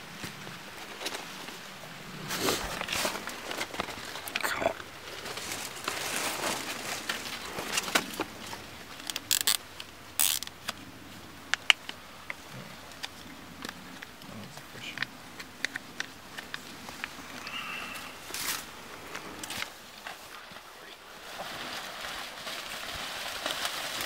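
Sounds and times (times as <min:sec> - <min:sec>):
dry leaves and clothing rustling: 0:00.0 - 0:24.0
sharp clicks and ticks: 0:11.5 - 0:17.2.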